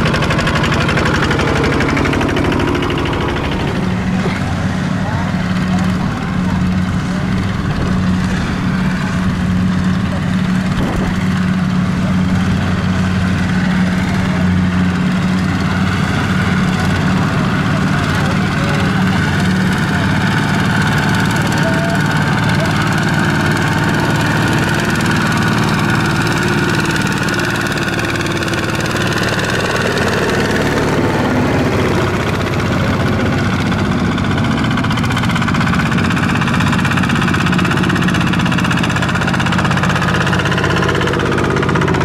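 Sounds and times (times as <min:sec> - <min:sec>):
diesel engine chugging: 0:00.0 - 0:42.0.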